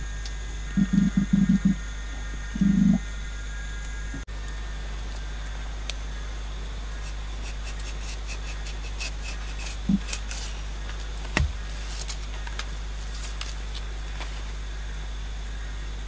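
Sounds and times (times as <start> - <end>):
low hum: 0.0 - 16.0
leaves tearing: 7.0 - 14.6
dull knocks: 11.3 - 11.8.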